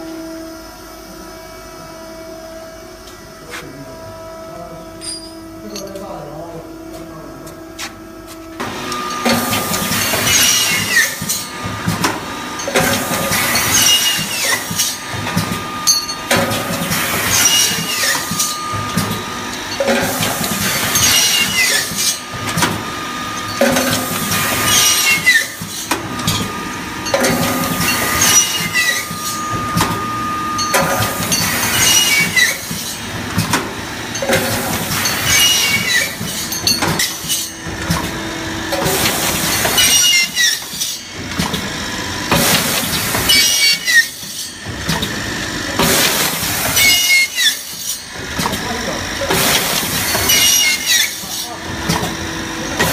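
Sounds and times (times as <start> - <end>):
machine whine: 0.0 - 52.9
machine knocking: 23.5 - 43.9, 51.6 - 52.9
metallic squeals: 27.8 - 32.7.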